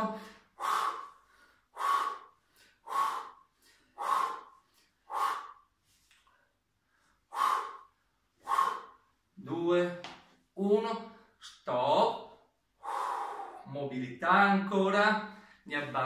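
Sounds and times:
man breathing out forcefully: 0:00.2 - 0:05.7, 0:06.9 - 0:09.1, 0:12.8 - 0:13.7.

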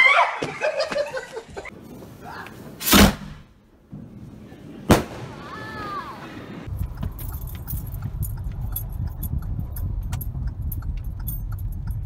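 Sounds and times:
firecracker bangs: 0:02.8 - 0:04.2, 0:04.8 - 0:05.7.

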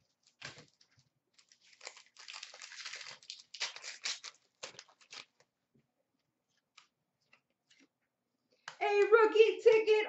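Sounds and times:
plastic wrapper crinkling and tearing: 0:00.0 - 0:05.6.

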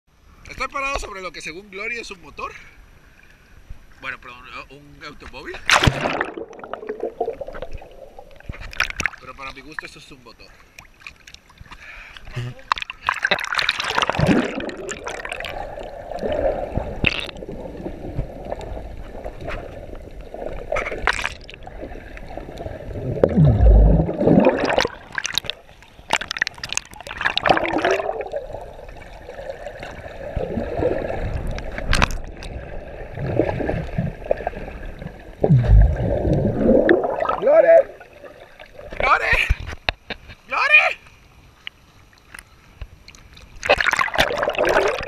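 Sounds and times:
underwater gurgling and sloshing: 0:01.4 - 0:45.0
water splashing: 0:05.0 - 0:39.8, 0:43.1 - 0:45.0
bubbles bursting: 0:05.7 - 0:09.2, 0:12.7 - 0:39.1, 0:43.6 - 0:45.0.

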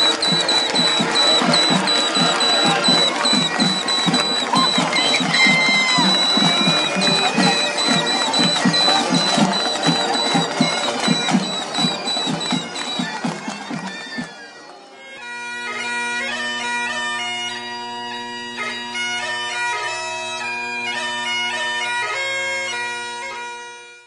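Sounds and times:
crowd noise from stands: 0:00.0 - 0:17.0
bagpipe music: 0:00.0 - 0:24.0.

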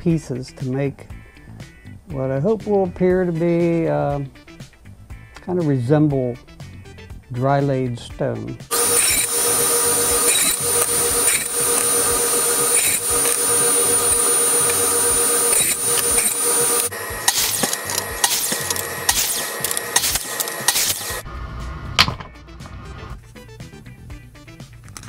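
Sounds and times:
miter saw cutting: 0:08.7 - 0:21.2
radial arm saw whining: 0:08.7 - 0:21.3.

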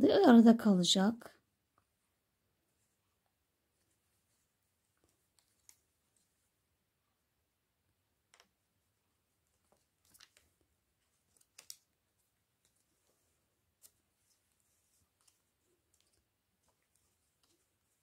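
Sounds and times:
crochet hook clicks and rustles: 0:11.2 - 0:12.0.

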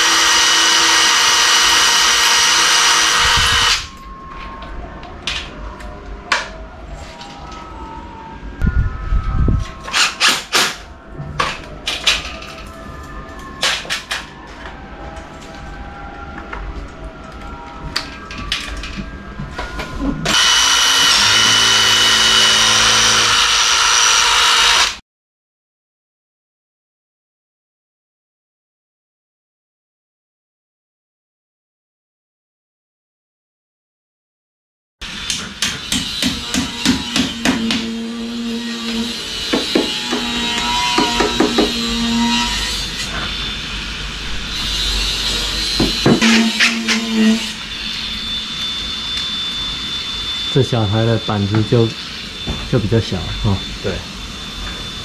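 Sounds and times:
power drill running: 0:00.0 - 0:03.9, 0:20.3 - 0:25.0
electric drill whining: 0:00.0 - 0:04.0, 0:20.2 - 0:25.0, 0:36.2 - 0:55.0.

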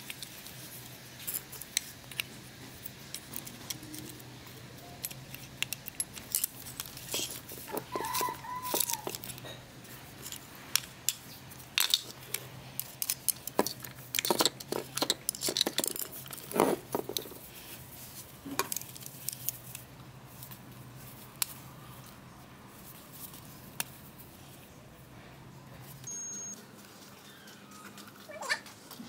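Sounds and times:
hand tools clicking and scraping: 0:00.0 - 0:22.2
brief squeak: 0:26.1 - 0:26.6.

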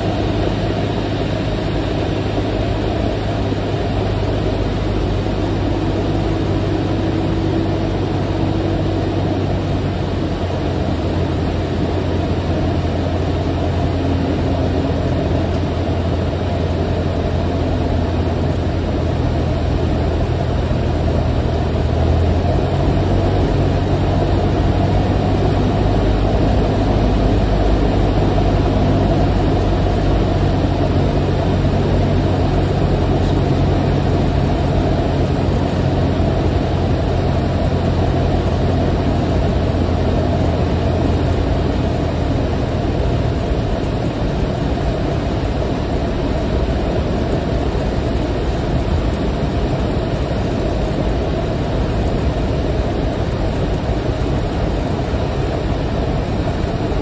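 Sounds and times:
propeller plane engine droning: 0:00.0 - 0:57.0.

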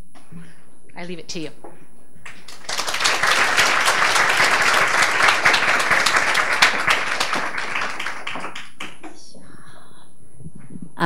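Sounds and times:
audience applauding: 0:02.2 - 0:09.3.

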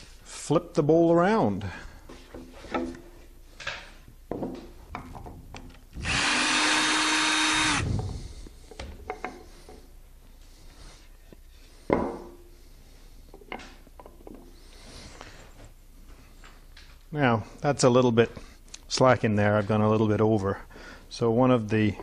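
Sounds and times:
cordless drill running: 0:06.0 - 0:08.1.

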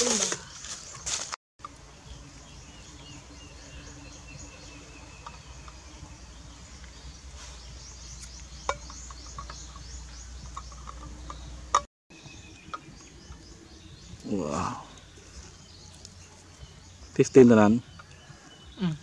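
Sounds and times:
insects chirping: 0:00.0 - 0:19.0.

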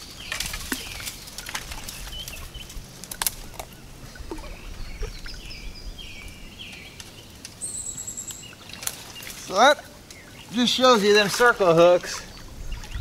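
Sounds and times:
twigs snapping: 0:00.0 - 0:03.8, 0:06.7 - 0:10.3
bird chirping: 0:00.0 - 0:13.0
branches rustling: 0:00.0 - 0:13.0
water sloshing: 0:00.0 - 0:13.0.

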